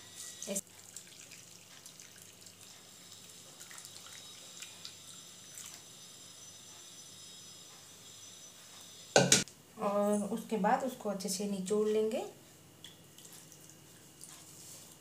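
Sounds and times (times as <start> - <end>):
small drips: 0.5 - 5.8, 12.8 - 15.0
liquid trickling through cloth: 0.6 - 5.8, 12.8 - 15.0.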